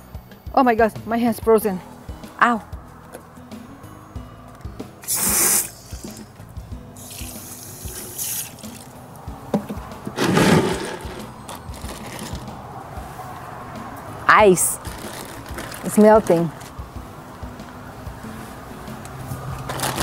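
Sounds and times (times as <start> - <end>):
hose spraying water into bucket: 5.0 - 6.4, 7.0 - 8.9, 10.2 - 11.3.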